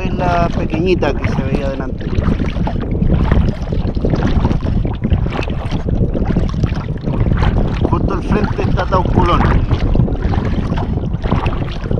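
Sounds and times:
water splashing against hull: 0:00.0 - 0:11.9
wind buffeting microphone: 0:00.0 - 0:11.9.

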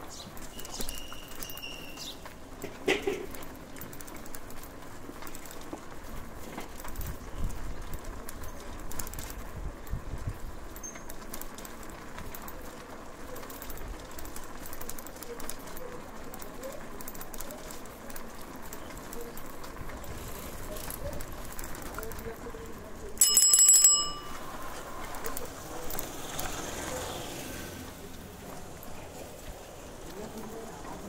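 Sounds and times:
low street background: 0:00.0 - 0:31.0
bicycle bell ringing: 0:23.2 - 0:25.5.

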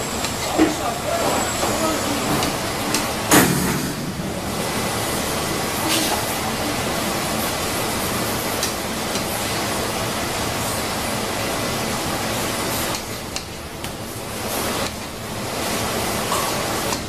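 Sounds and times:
steady rushing noise: 0:02.6 - 0:11.6.

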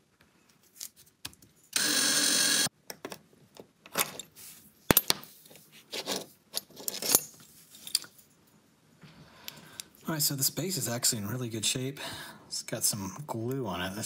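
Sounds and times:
power drill drilling metal: 0:01.8 - 0:02.7.

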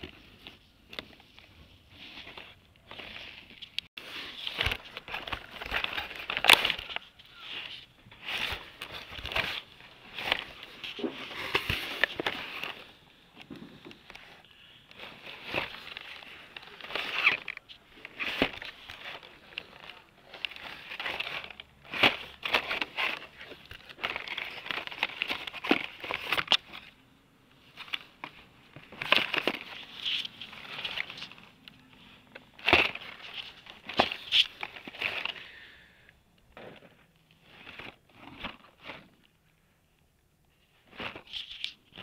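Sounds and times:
plastic packs crinkling and clacking: 0:00.0 - 0:35.6.

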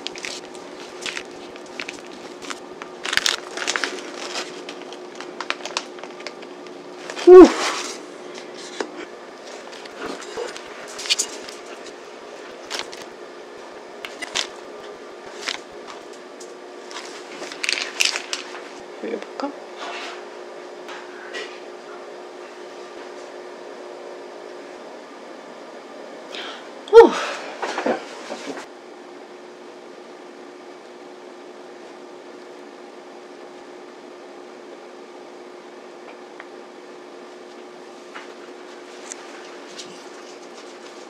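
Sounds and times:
plastic piping bag crinkling: 0:00.0 - 0:07.2, 0:09.5 - 0:13.1, 0:14.1 - 0:16.2, 0:16.8 - 0:18.8
steady low hum: 0:00.0 - 0:41.0.

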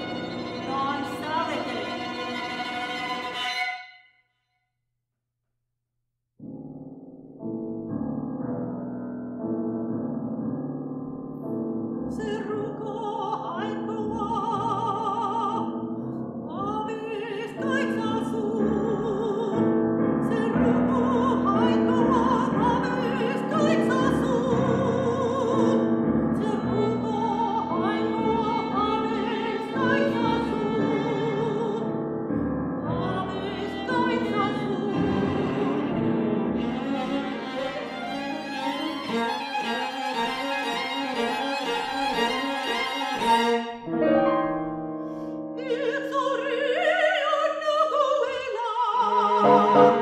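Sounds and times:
piano: 0:00.0 - 0:03.6, 0:06.4 - 0:50.0
cello: 0:00.0 - 0:03.9, 0:12.2 - 0:44.5, 0:45.6 - 0:50.0
violin: 0:00.0 - 0:04.0, 0:20.3 - 0:32.1, 0:32.8 - 0:44.5, 0:45.6 - 0:50.0
soprano singing with vibrato: 0:12.2 - 0:15.8, 0:16.5 - 0:31.9, 0:32.9 - 0:36.2, 0:45.6 - 0:50.0.

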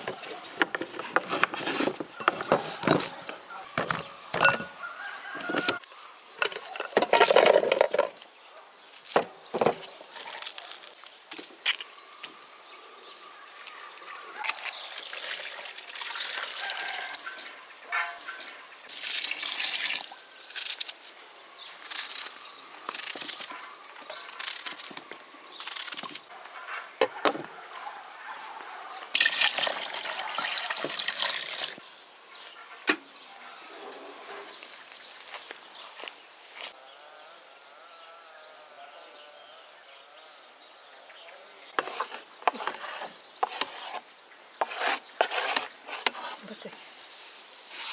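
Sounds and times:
water pouring into metal pot: 0:14.7 - 0:17.6, 0:18.9 - 0:20.1, 0:29.2 - 0:31.8.

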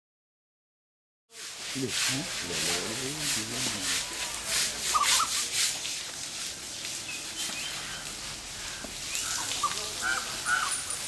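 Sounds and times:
scrubbing stroke on hide: 0:01.3 - 0:11.0
bird chirps: 0:07.0 - 0:08.1.

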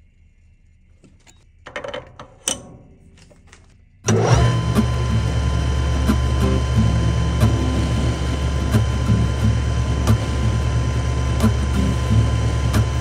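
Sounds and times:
lathe motor humming and whining: 0:04.1 - 0:13.0.

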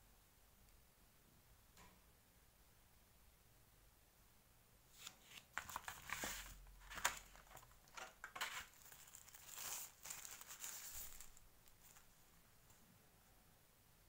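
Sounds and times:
plastic wrapping crinkling: 0:05.0 - 0:12.1.

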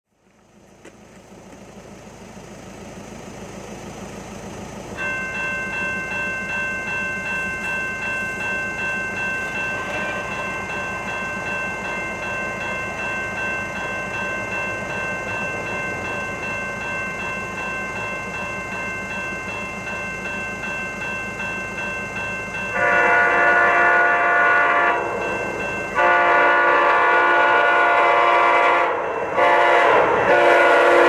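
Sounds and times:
low steady rumble: 0:00.1 - 0:21.6
railroad crossing bell ringing: 0:01.6 - 0:31.0.

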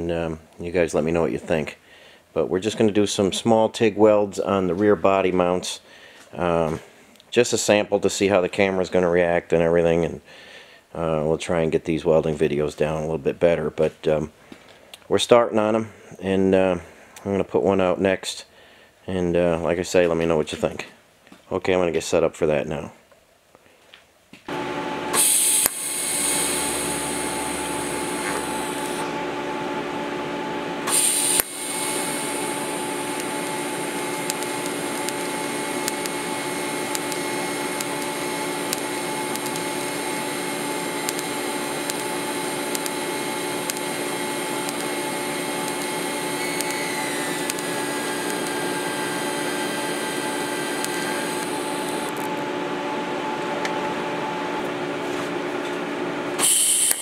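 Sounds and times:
welder humming and whining: 0:24.5 - 0:57.0
welding arc hissing: 0:25.1 - 0:29.0, 0:30.8 - 0:52.3, 0:56.4 - 0:57.0.

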